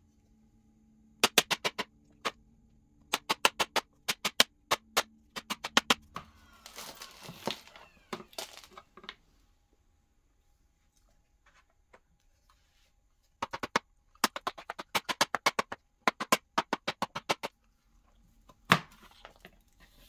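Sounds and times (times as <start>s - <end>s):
sharp plastic taps: 1.2s - 2.4s, 3.0s - 6.2s, 13.4s - 17.5s
rustling and scraping: 10.7s - 13.4s.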